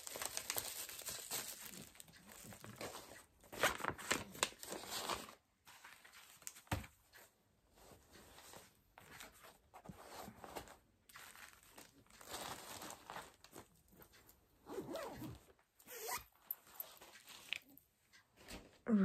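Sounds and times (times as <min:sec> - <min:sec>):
rustling and crinkling packaging: 0:00.0 - 0:14.4.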